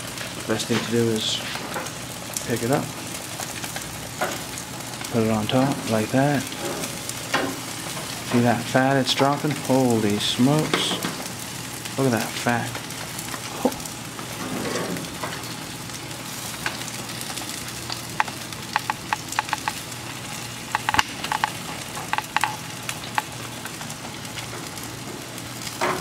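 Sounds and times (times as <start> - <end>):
meat sizzling on a grill: 0.0 - 26.0
fat popping and crackling: 15.2 - 26.0.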